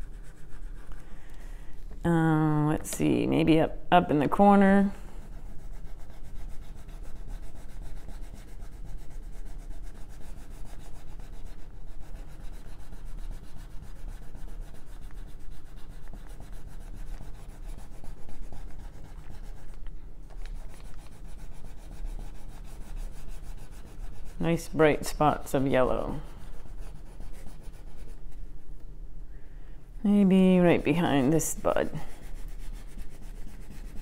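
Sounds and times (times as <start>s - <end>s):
crayon scratching on paper: 0.0s - 1.0s, 5.2s - 28.2s, 30.2s - 34.0s.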